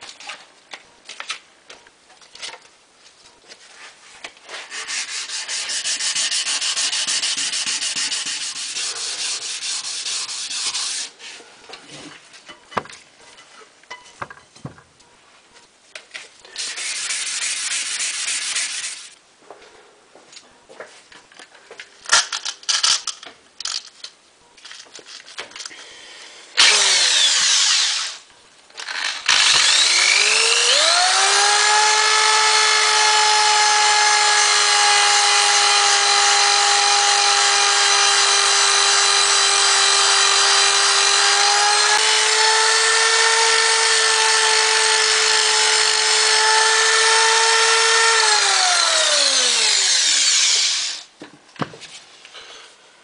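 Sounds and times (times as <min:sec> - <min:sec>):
power tool scouring metal: 0:26.6 - 0:28.2, 0:28.8 - 0:51.0.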